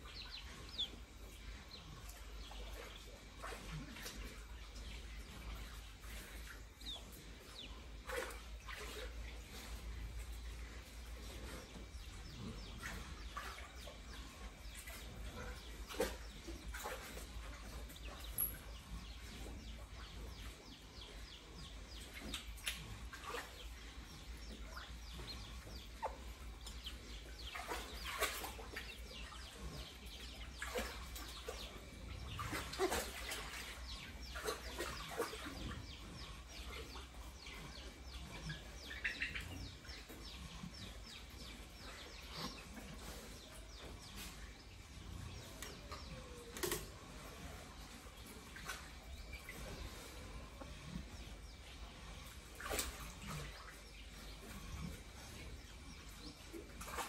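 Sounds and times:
chickens clucking: 24.3s - 55.6s.

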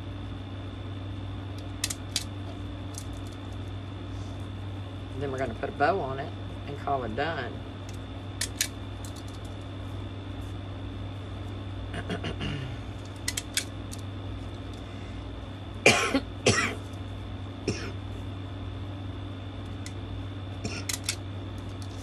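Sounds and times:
background hum: 0.0s - 22.0s
person coughing: 12.0s - 12.8s, 15.8s - 16.9s, 17.6s - 18.0s, 20.6s - 21.0s.

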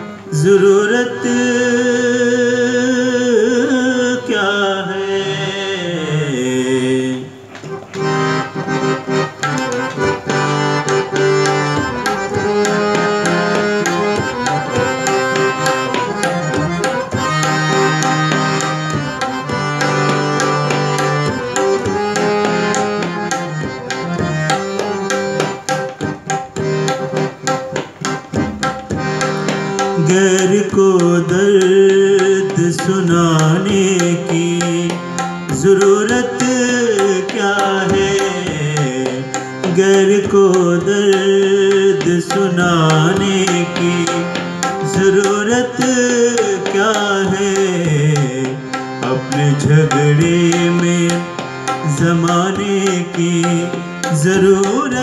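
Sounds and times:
harmonium melody: 0.0s - 55.0s
tabla strokes: 7.5s - 40.1s.

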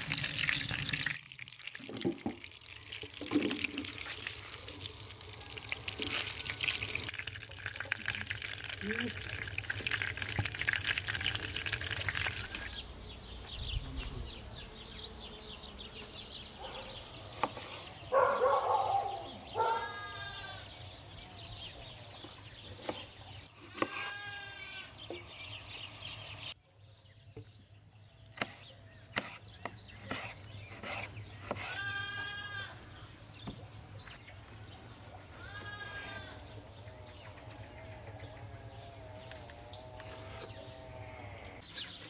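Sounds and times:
farm animal bleating: 19.6s - 20.8s, 23.6s - 25.0s, 31.7s - 33.0s, 35.3s - 36.5s, 38.3s - 41.6s.

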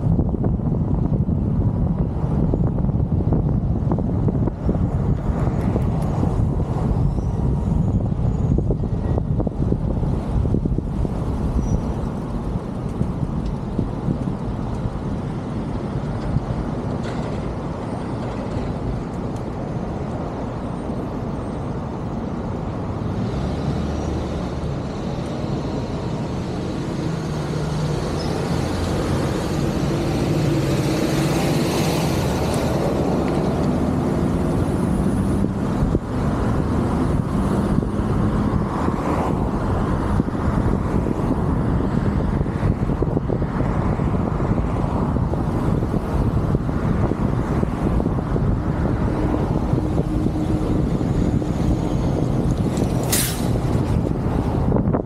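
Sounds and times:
car tyre and engine rumble: 0.0s - 55.0s
heavy vehicle engine: 0.0s - 55.0s
brief hiss: 53.0s - 53.6s.

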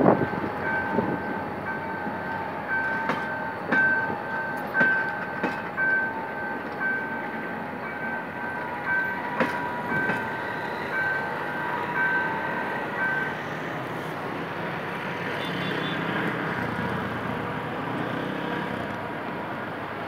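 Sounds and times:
train coaches rumbling on rails: 0.0s - 20.0s.

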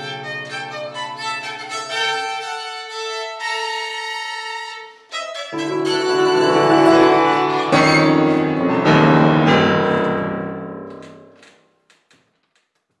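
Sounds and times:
grand piano chords: 5.6s - 11.5s.

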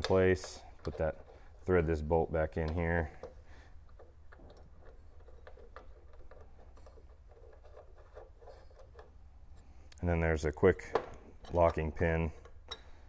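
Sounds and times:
metal hardware clicking and scraping: 0.0s - 13.0s.

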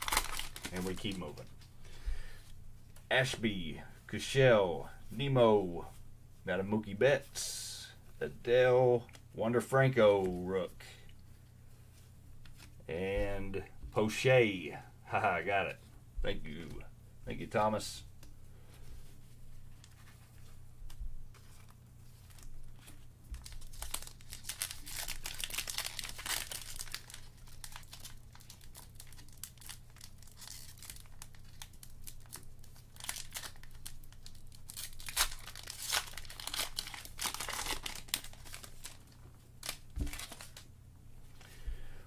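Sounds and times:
wrapper crinkling and tearing: 0.0s - 1.6s, 21.4s - 40.7s.

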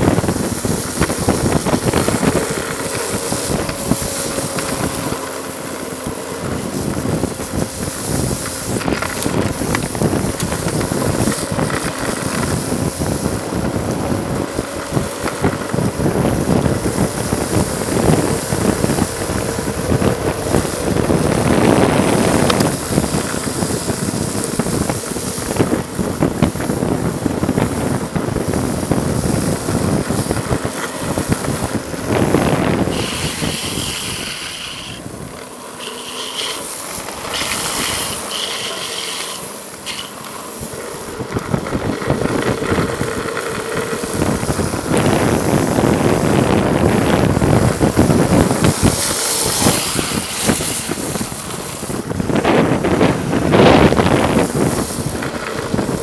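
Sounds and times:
skateboard wheels rolling on wet asphalt: 0.0s - 56.0s
vehicle road noise: 0.0s - 56.0s
wind on microphone: 0.0s - 56.0s
short high squeals: 35.7s - 40.2s.

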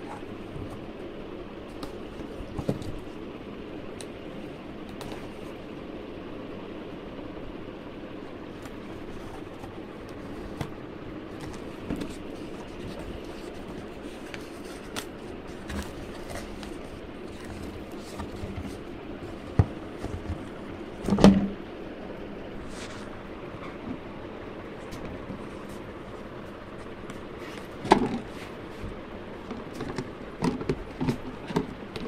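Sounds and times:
steady background hum: 0.0s - 32.0s
cardboard flaps rustling: 1.6s - 3.2s, 8.5s - 21.6s.

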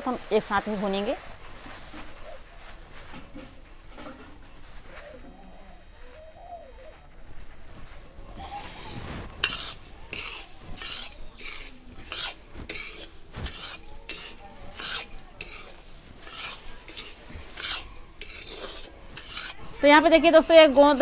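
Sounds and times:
spoon scraping granules in a pan: 0.0s - 2.4s, 7.6s - 21.0s.

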